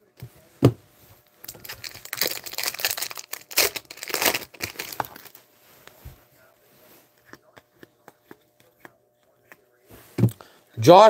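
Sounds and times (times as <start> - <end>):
foil wrapper crinkling and tearing: 1.5 - 5.4.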